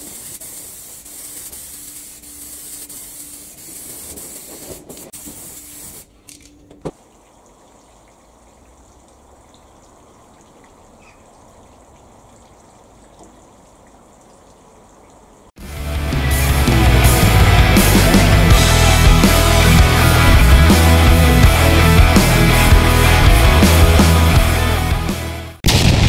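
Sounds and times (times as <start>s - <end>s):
aerosol spray can hissing: 0.0s - 6.1s.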